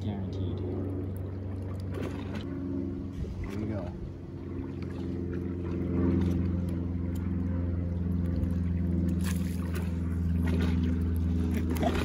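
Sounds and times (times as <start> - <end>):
motor humming: 0.0 - 12.0.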